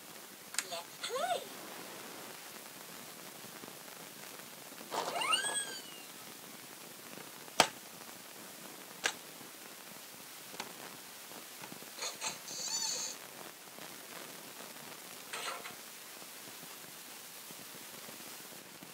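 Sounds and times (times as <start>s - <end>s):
warbling electronic toy sound: 4.9s - 6.1s.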